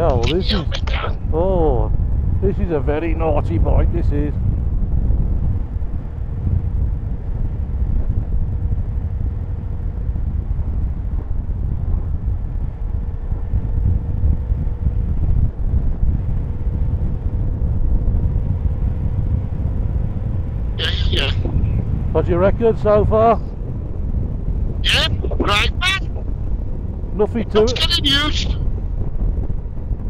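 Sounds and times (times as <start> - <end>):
wind noise on microphone: 0.0 - 30.0
motorcycle engine humming: 4.4 - 27.6.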